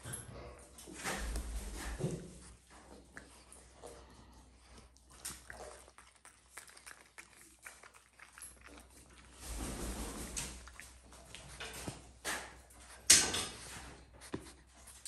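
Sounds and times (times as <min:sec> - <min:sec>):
animal chewing wet smacking: 0:02.5 - 0:09.4, 0:10.3 - 0:12.2.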